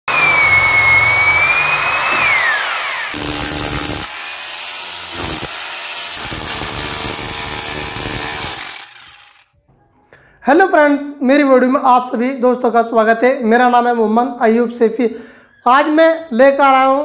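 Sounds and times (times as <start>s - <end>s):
rotary hammer motor whining: 0.1s - 9.5s
rotary hammer chiselling brick: 3.2s - 9.4s.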